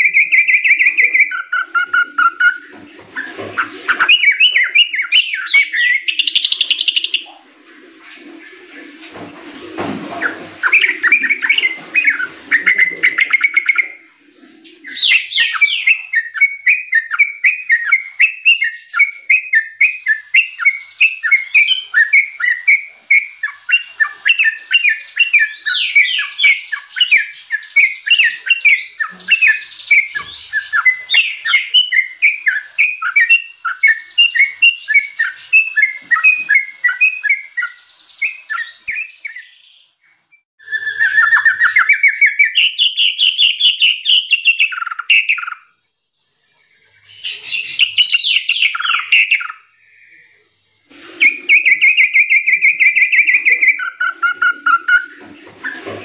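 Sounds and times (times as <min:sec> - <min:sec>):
bulbul singing chattering song: 0:51.2 - 0:55.2.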